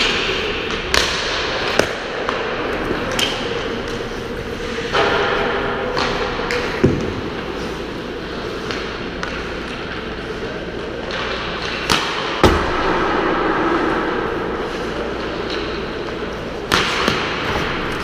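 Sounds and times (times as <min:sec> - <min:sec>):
puck hitting boards: 0:00.0 - 0:04.0, 0:04.9 - 0:07.5, 0:11.1 - 0:13.2, 0:16.7 - 0:18.0
pucks and sticks knocking: 0:00.0 - 0:07.5
skate blades on ice: 0:00.0 - 0:18.0.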